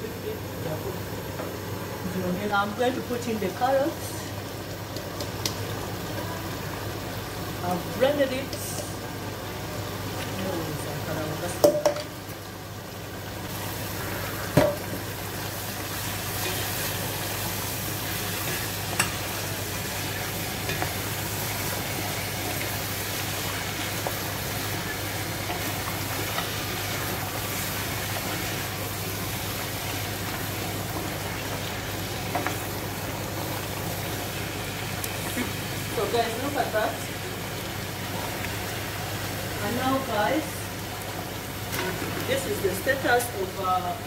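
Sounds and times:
vegetables sizzling in a pot: 0:00.0 - 0:44.0
wooden spoon knocking on pot: 0:11.6 - 0:12.1.

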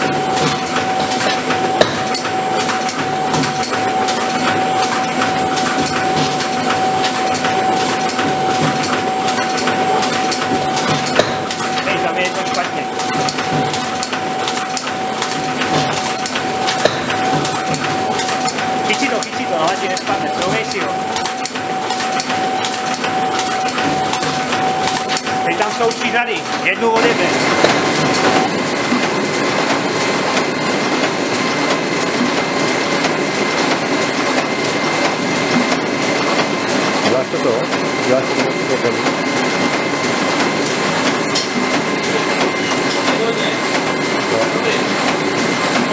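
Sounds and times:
machine whine: 0:00.0 - 0:45.9
machine metallic clicks and clatters: 0:00.2 - 0:28.4.

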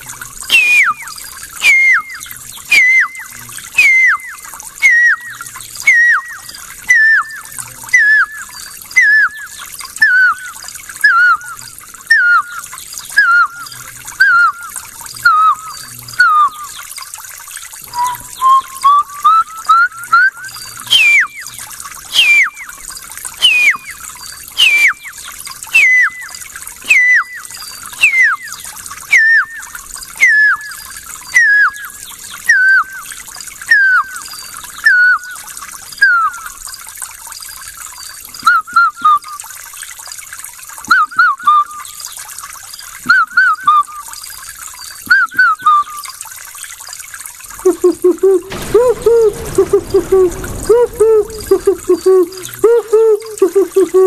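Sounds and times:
man whistling bird call: 0:00.5 - 0:16.8, 0:17.9 - 0:22.8, 0:23.4 - 0:24.0, 0:24.6 - 0:31.9, 0:32.5 - 0:33.1, 0:33.7 - 0:34.2, 0:34.8 - 0:35.4, 0:36.0 - 0:36.6, 0:38.4 - 0:39.4, 0:40.9 - 0:41.8, 0:43.1 - 0:44.0, 0:45.1 - 0:46.0, 0:47.7 - 0:54.0.

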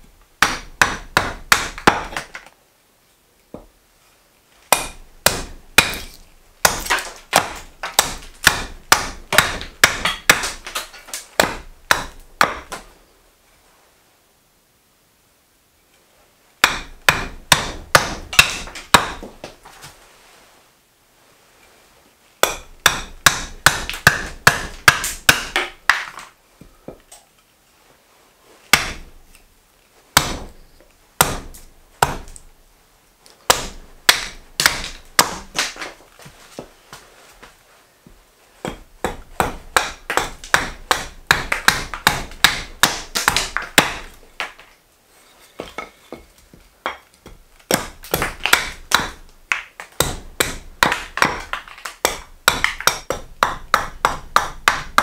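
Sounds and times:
axe chopping wood: 0:00.4 - 0:02.4, 0:04.7 - 0:12.9, 0:16.6 - 0:19.6, 0:22.4 - 0:26.2, 0:28.7 - 0:29.2, 0:30.2 - 0:30.6, 0:31.2 - 0:32.4, 0:33.5 - 0:36.0, 0:38.6 - 0:44.6, 0:46.8 - 0:55.0.

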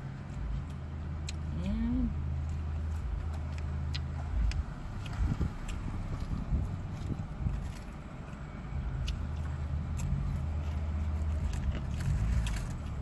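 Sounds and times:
person eating and licking fingers: 0:02.3 - 0:08.0.

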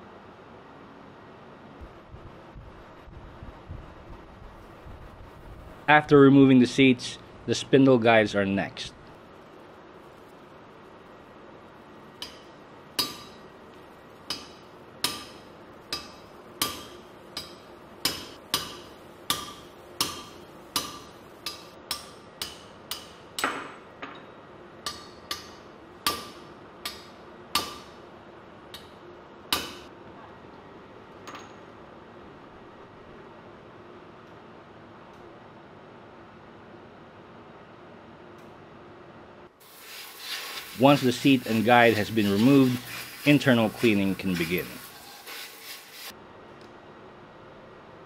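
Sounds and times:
hammer striking steel drift: 0:12.2 - 0:13.5.

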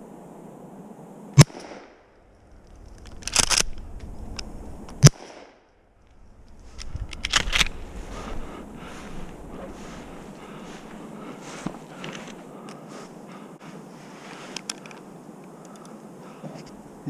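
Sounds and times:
shotgun shots: 0:01.4 - 0:01.9, 0:05.0 - 0:05.6
handling rustling noise: 0:06.1 - 0:15.2.

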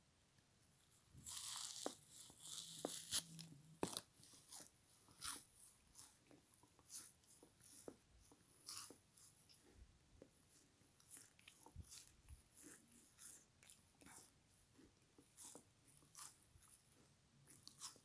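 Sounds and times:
crunching frozen sponge: 0:01.2 - 0:06.2.

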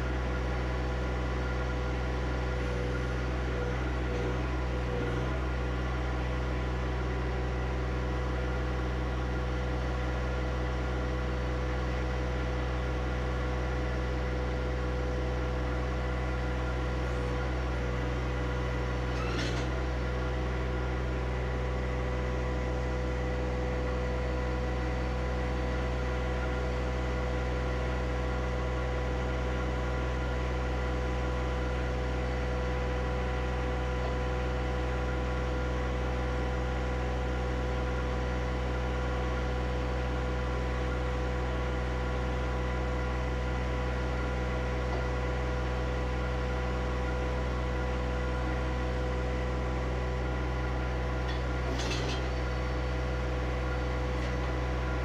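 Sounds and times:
tractor diesel engine idling: 0:19.7 - 0:55.0.

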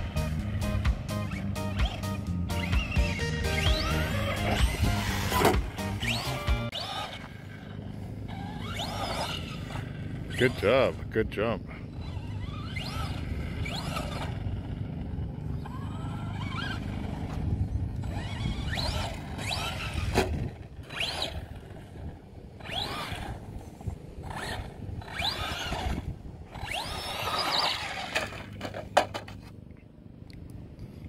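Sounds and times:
electric motor whining: 0:00.0 - 0:29.2
steady low rumble: 0:03.7 - 0:28.6.

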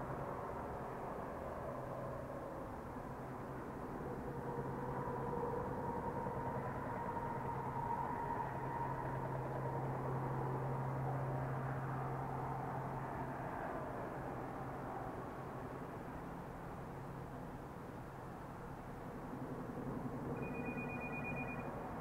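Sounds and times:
distant road traffic rumble: 0:00.0 - 0:22.0
passing vehicle tone: 0:20.4 - 0:22.0.

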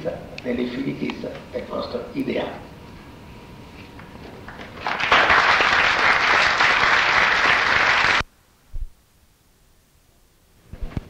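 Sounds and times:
audience applauding: 0:04.4 - 0:08.2.

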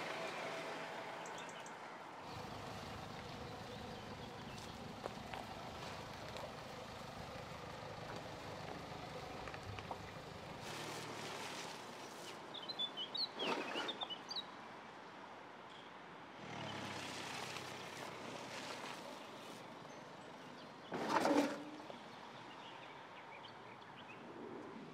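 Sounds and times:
diesel engine running at low speed: 0:00.0 - 0:12.1.

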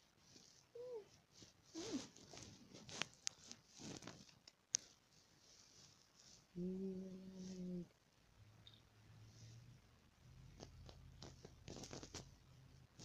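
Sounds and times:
fur rustling against phone: 0:00.0 - 0:06.6, 0:10.5 - 0:13.0.

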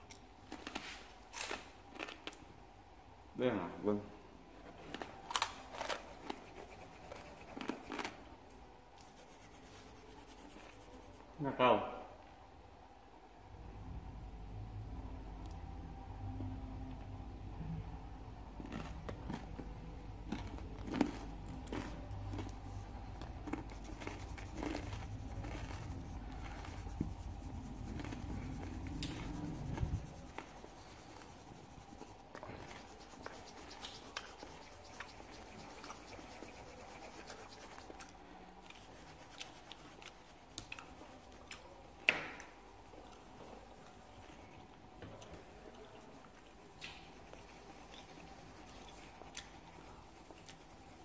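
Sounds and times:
pencil scratching on paper: 0:05.8 - 0:08.2, 0:09.0 - 0:11.3, 0:23.7 - 0:38.0, 0:38.7 - 0:44.4, 0:45.2 - 0:51.0
low background rumble: 0:12.4 - 0:51.0.

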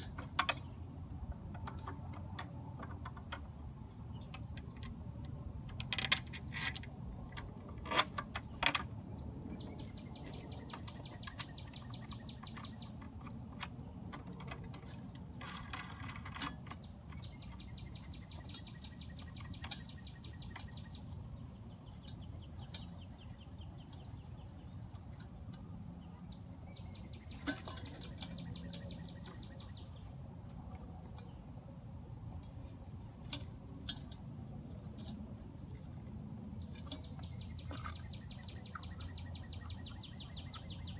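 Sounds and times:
bird trilling: 0:26.7 - 0:30.0.

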